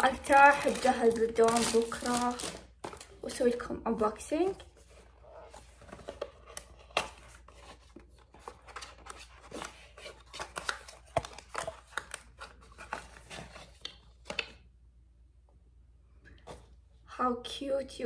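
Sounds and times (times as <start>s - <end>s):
packaging rustling and crinkling: 0.0s - 3.4s.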